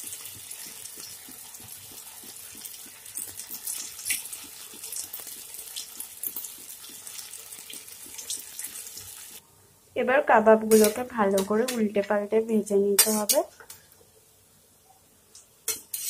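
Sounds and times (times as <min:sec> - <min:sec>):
food deep-frying in hot oil: 0:00.0 - 0:09.4, 0:12.6 - 0:14.0, 0:15.3 - 0:16.0
oil crackling and popping: 0:00.0 - 0:09.4.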